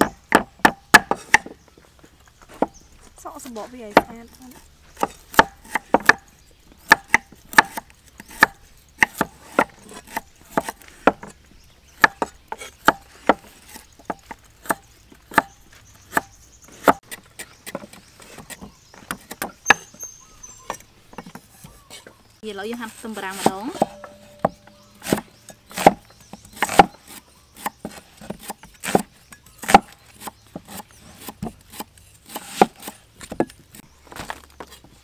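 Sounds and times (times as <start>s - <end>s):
cleaver chopping on wooden block: 0.0s - 1.6s, 4.9s - 11.4s, 12.0s - 19.9s, 22.9s - 33.6s.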